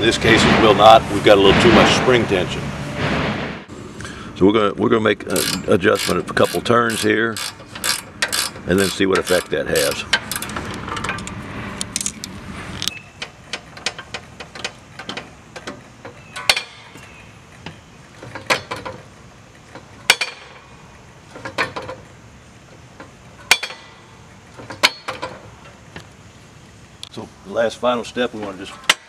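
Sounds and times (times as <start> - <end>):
wrench clicking: 5.3 - 11.3.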